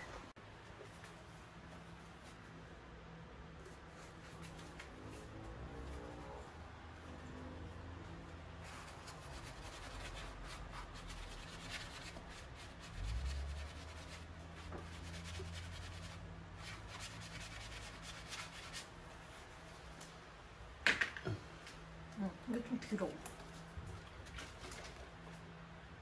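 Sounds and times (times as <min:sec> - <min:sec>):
sponge scrubbing wallpaper: 0:03.6 - 0:07.6, 0:08.4 - 0:19.8.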